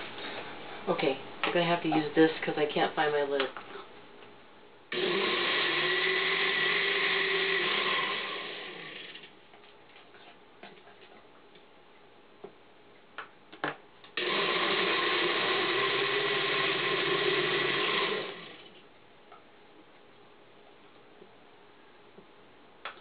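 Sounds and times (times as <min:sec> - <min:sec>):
countertop blender running: 0:04.9 - 0:09.3, 0:14.2 - 0:18.8.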